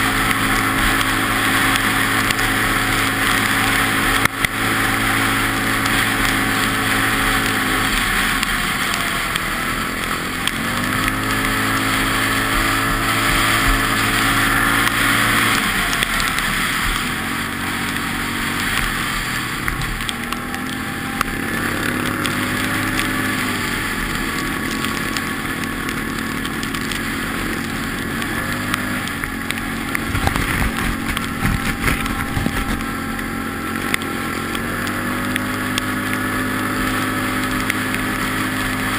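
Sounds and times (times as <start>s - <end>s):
quad bike engine revving: 0.0s - 38.9s
wind on microphone: 28.7s - 33.2s.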